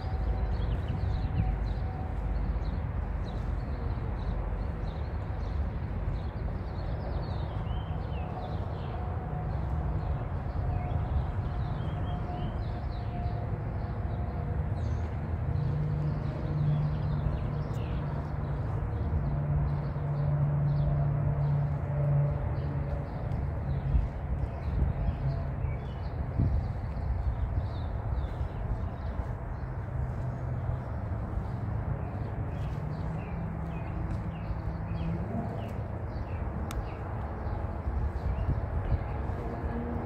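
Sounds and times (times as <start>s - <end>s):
low outdoor rumble: 0.0s - 40.0s
small birds chirping: 23.1s - 39.5s.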